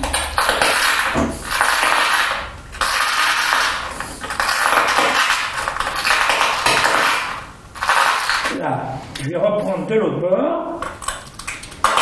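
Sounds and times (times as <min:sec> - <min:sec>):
glass scraping and crackling: 0:00.0 - 0:08.6.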